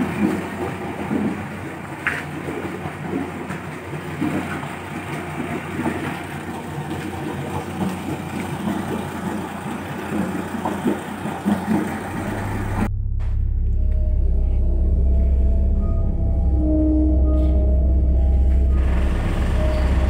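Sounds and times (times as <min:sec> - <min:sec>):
engine idling: 0:04.8 - 0:20.0.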